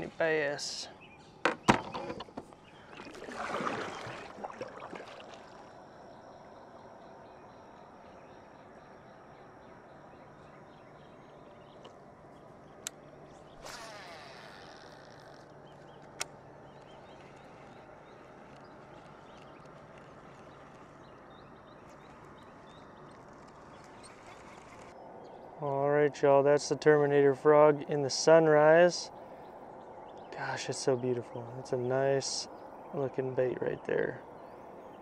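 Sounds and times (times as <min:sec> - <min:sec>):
reel whirring as line pays out: 0:13.6 - 0:15.5.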